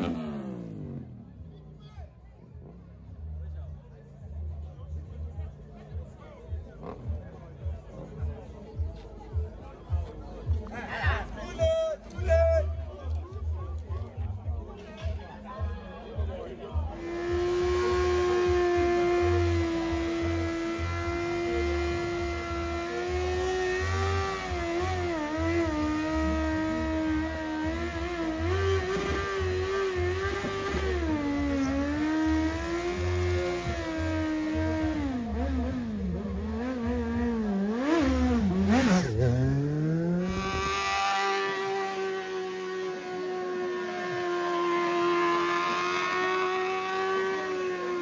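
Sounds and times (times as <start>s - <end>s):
motorcycle engine revving: 0.0s - 1.8s, 6.6s - 7.4s, 16.9s - 48.0s.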